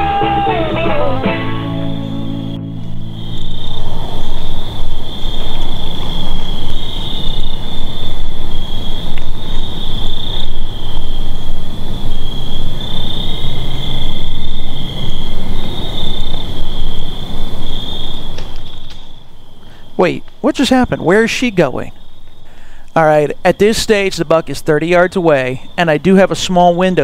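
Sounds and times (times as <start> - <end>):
crickets trilling: 0.4 - 27.0
low rushing noise: 0.6 - 21.9.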